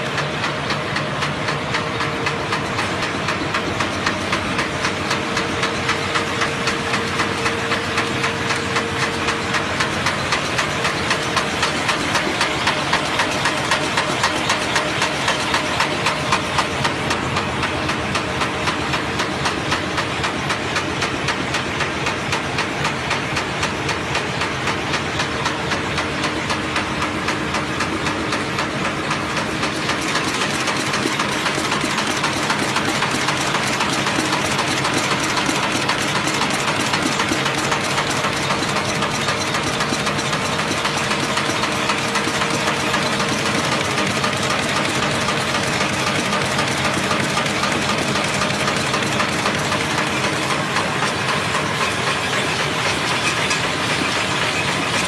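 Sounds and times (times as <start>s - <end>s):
machine clattering: 0.0s - 55.0s
machine hum and hiss: 0.0s - 55.0s.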